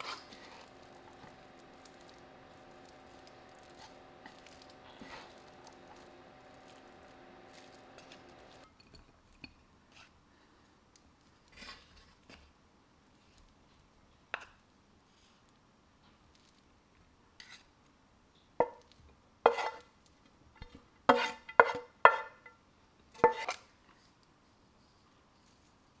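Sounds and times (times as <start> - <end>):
utensils scraping a ceramic plate: 0.0 - 8.7, 19.5 - 19.9, 20.6 - 22.5, 23.2 - 23.7.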